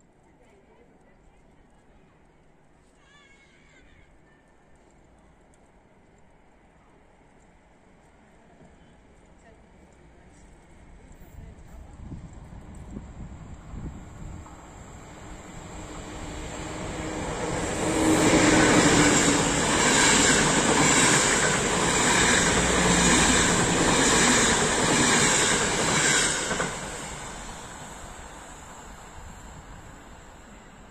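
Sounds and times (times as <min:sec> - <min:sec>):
train wheels rumbling on rails: 0:09.2 - 0:30.9.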